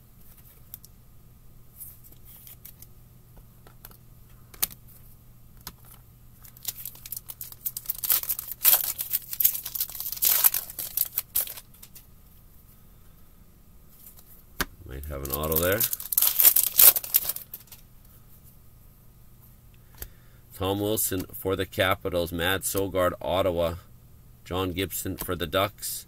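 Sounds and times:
foil wrapper tearing and crinkling: 5.8s - 12.0s, 14.9s - 17.8s.

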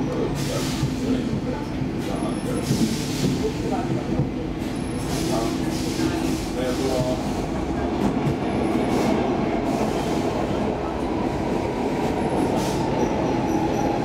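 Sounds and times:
train rumbling through tunnel: 0.0s - 14.0s.

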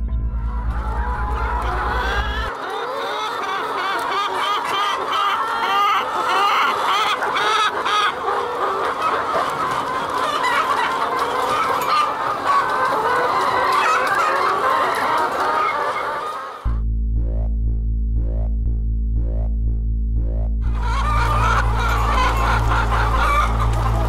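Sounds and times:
hens clucking: 0.6s - 16.7s, 20.7s - 24.0s.

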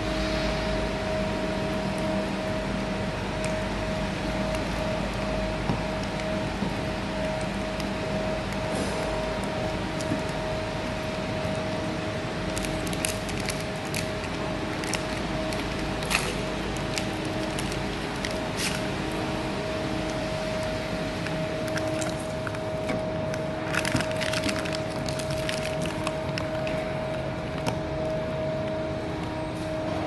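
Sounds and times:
steady hum: 0.0s - 30.0s
foil crinkling: 12.5s - 18.9s, 21.2s - 22.6s, 23.6s - 26.6s.

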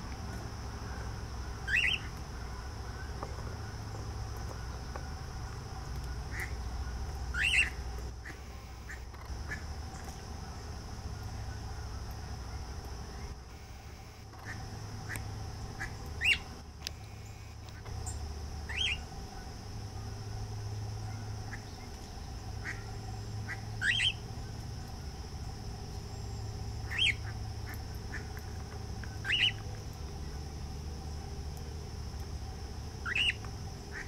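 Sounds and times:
low steady hum: 0.0s - 34.0s
bird calling: 0.7s - 20.2s, 21.0s - 25.0s, 26.2s - 30.4s, 33.0s - 34.0s.

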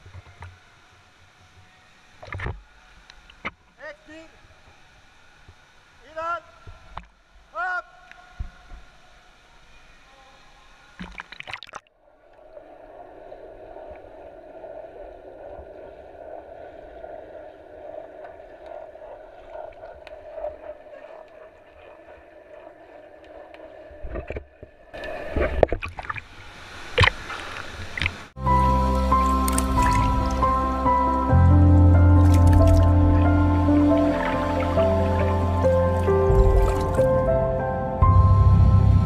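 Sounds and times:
water splashing and sloshing: 11.0s - 37.7s
muffled underwater rush: 11.3s - 39.0s.

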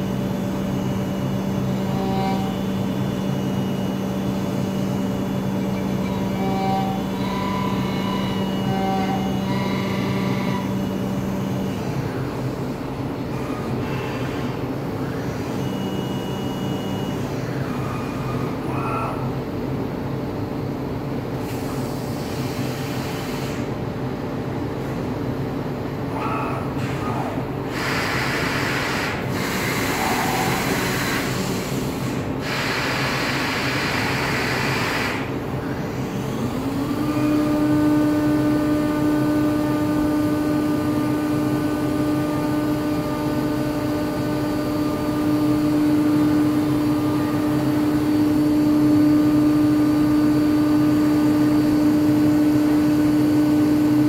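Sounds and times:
milling machine humming: 0.0s - 19.5s, 25.9s - 54.0s
motor spinning up whine: 32.8s - 54.0s.

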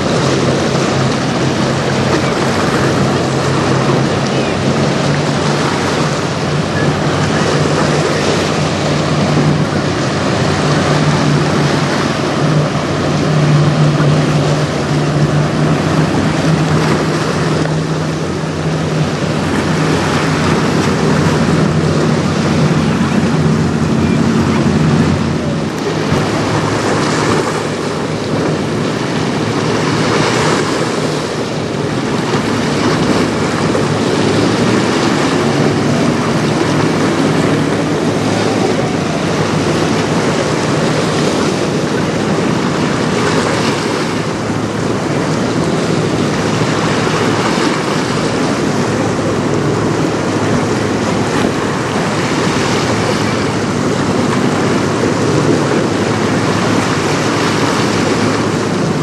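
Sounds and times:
boat engine hum: 0.0s - 59.0s
choppy river water: 0.0s - 59.0s
wind buffeting microphone: 0.0s - 59.0s.

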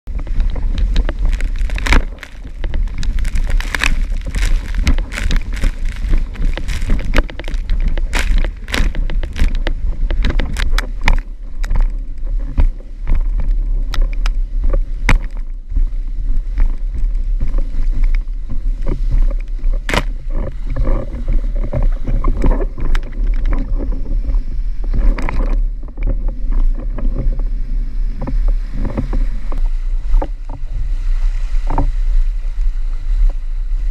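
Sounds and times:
wind rumble on microphone: 0.0s - 33.9s
water splashing against board: 0.1s - 15.5s.

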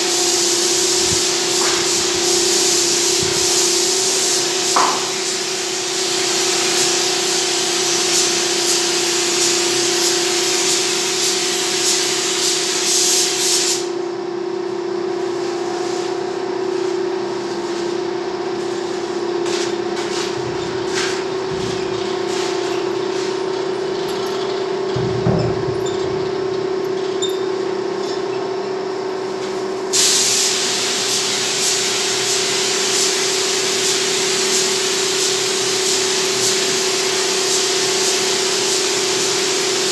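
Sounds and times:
paint spray gun hissing: 0.0s - 14.0s, 29.8s - 39.9s
steady hum: 14.0s - 27.9s.

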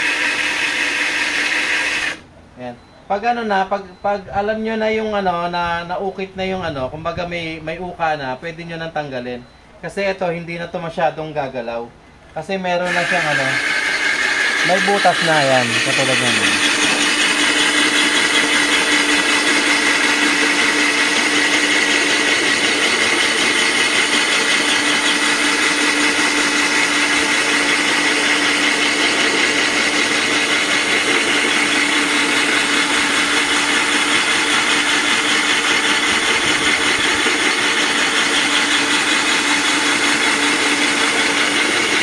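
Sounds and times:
drill hole saw grinding glass: 0.0s - 2.2s, 12.8s - 42.0s.

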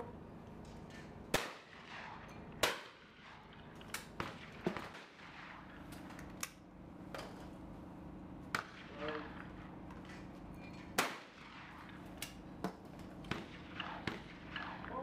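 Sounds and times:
shotgun shots: 1.3s - 6.0s, 8.5s - 9.8s, 10.9s - 12.5s, 13.2s - 15.0s.

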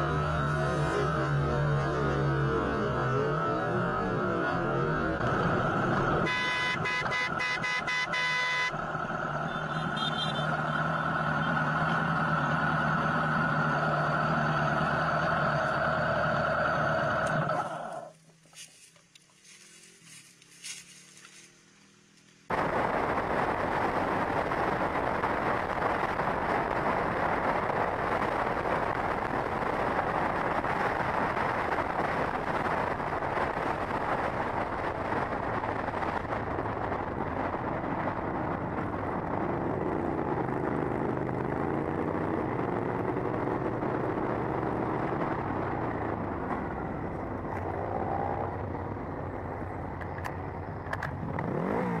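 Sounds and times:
wind rushing on microphone: 22.5s - 50.8s.

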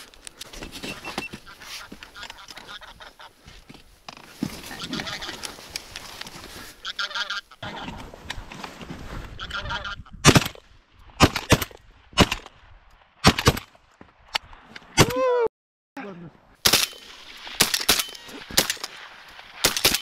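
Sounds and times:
geese honking: 0.9s - 3.4s, 4.5s - 5.7s, 6.6s - 8.0s, 9.4s - 10.1s
shotgun shots: 10.2s - 10.6s, 16.6s - 18.9s, 19.6s - 20.0s.

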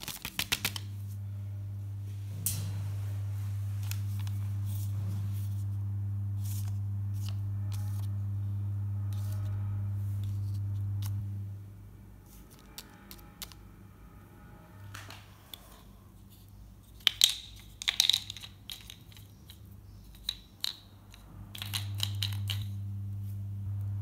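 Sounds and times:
paper crinkling: 0.0s - 0.9s
low electrical hum: 0.0s - 24.0s.

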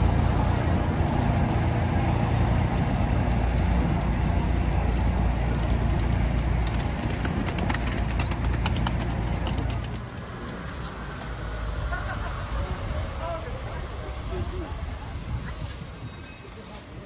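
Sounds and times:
vehicle rumbling over cobblestones: 0.0s - 17.0s
sharp clicks and rattles: 4.9s - 10.2s.

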